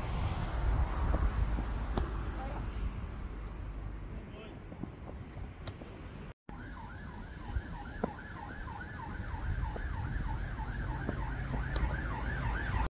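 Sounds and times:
siren yelping: 6.5 - 12.9.

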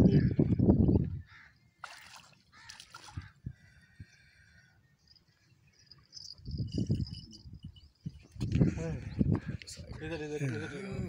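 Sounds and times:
water splashing: 1.8 - 3.3.

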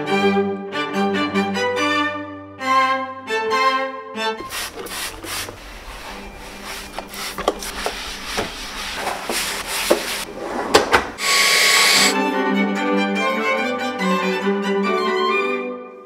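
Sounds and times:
sponge scrubbing inside drawer: 4.4 - 12.1
loud hiss: 11.2 - 12.2.

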